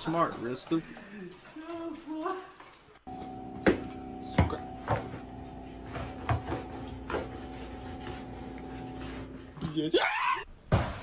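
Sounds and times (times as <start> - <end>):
steady hum: 3.1 - 9.6.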